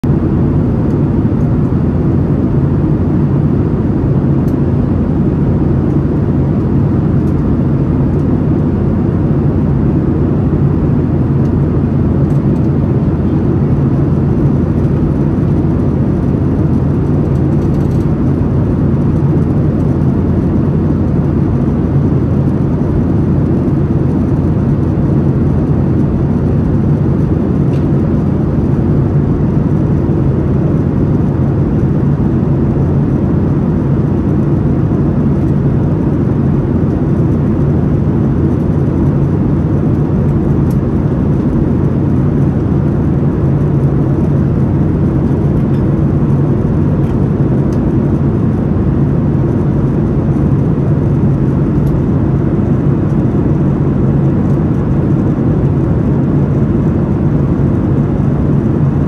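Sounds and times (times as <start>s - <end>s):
airliner cabin engine rush: 0.0s - 59.0s.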